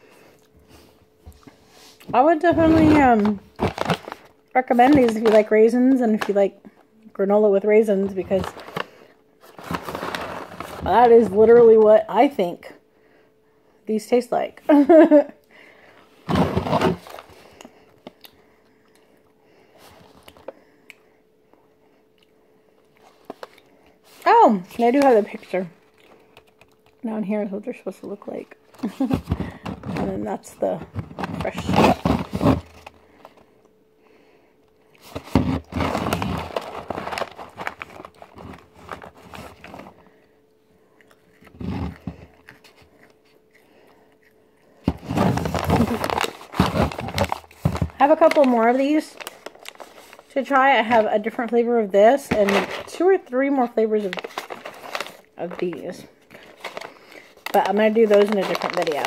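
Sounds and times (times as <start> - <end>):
faint steady hum: 0.0 - 59.0
plastic snack pouch crinkling: 3.0 - 6.4, 35.1 - 39.8, 45.0 - 51.4, 52.3 - 59.0
plastic pouch clicks and crinkle: 45.4 - 50.3, 54.0 - 59.0.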